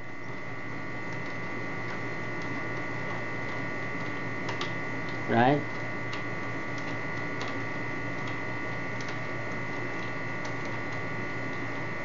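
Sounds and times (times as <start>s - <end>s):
electrical hum: 0.0s - 12.0s.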